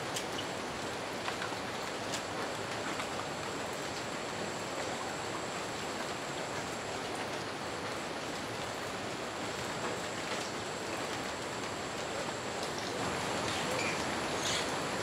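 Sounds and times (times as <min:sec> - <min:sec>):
fast-flowing river rushing: 0:11.8 - 0:15.0.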